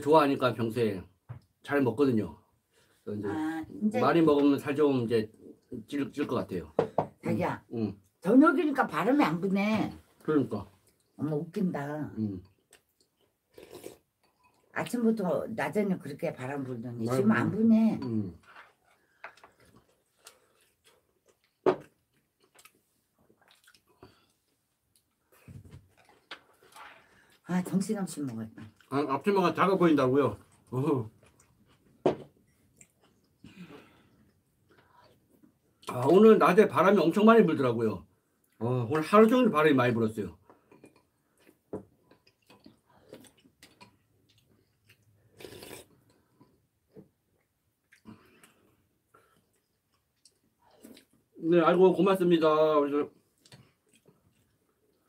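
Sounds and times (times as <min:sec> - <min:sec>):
soft chewing: 0:10.0 - 0:11.2, 0:12.3 - 0:15.0, 0:18.0 - 0:27.4, 0:28.2 - 0:29.6, 0:30.2 - 0:36.2, 0:40.4 - 0:51.4, 0:53.0 - 0:55.0.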